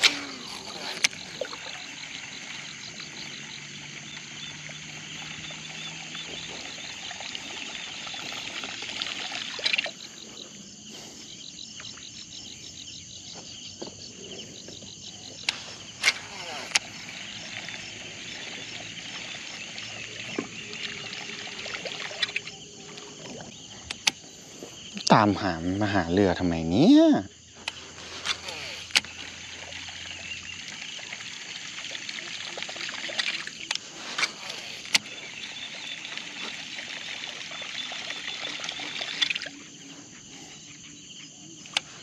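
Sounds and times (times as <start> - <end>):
insects chirping: 0.0 - 42.0
water trickling around a boat: 0.0 - 42.0
sharp clicks: 15.3 - 21.0, 21.7 - 24.2, 27.6 - 29.4.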